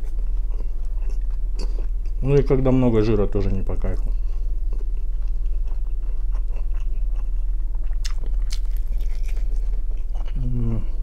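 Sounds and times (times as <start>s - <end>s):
man chewing: 0.0s - 2.2s, 4.0s - 11.0s
low hum: 0.0s - 11.0s.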